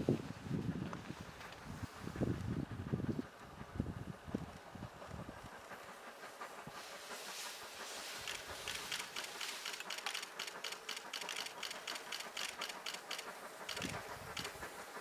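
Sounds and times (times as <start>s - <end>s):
camera shutters clicking: 8.3s - 14.6s.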